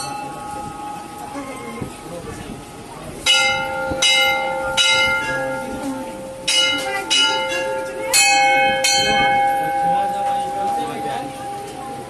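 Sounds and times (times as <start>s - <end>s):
brass bell struck and ringing: 3.3s - 11.2s.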